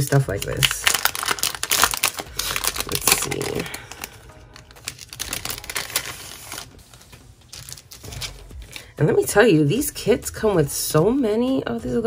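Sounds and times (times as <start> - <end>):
plastic sleeve crinkling: 0.0 - 9.0.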